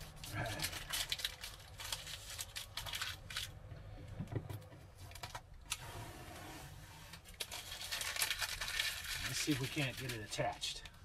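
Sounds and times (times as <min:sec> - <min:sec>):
small parts clicking and rustling: 0:07.3 - 0:11.0.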